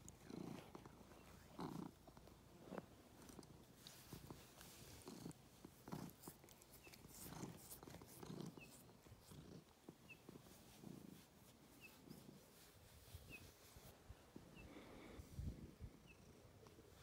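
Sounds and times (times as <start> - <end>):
cat purring: 0.0 - 17.0.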